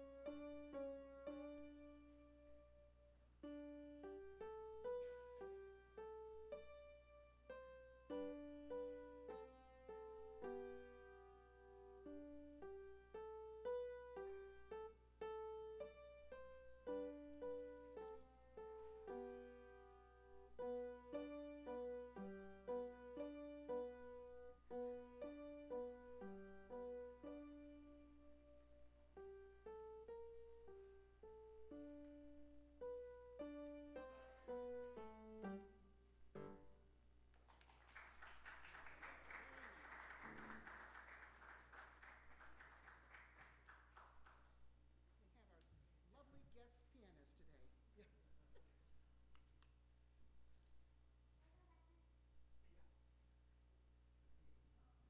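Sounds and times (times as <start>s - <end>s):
slow solo piano: 0.0s - 37.0s
people applauding: 37.4s - 44.5s.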